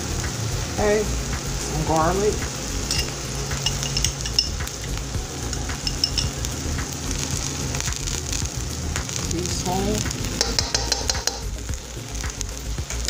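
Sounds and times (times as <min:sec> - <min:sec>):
onions sizzling in oil: 0:00.0 - 0:13.0
metal spoon clicking on pan: 0:02.9 - 0:06.4, 0:10.4 - 0:11.5.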